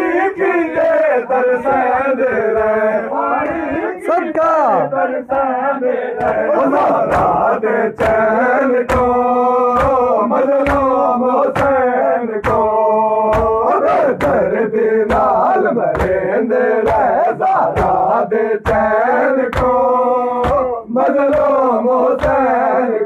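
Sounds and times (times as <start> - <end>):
men chanting in unison: 0.0 - 23.0
chest-beating slaps: 6.2 - 22.7.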